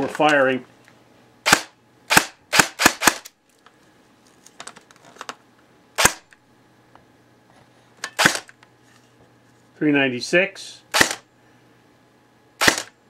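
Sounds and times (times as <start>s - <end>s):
airsoft gun shots: 1.4s - 3.3s, 6.0s - 6.3s, 8.2s - 8.5s, 10.9s - 11.2s, 12.6s - 12.9s.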